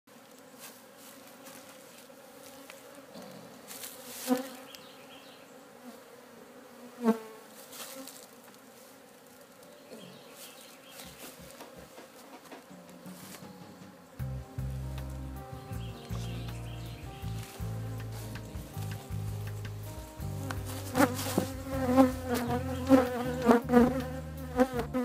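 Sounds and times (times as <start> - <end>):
bees buzzing: 0.1 - 25.0
short loud bee buzz: 20.0 - 25.0.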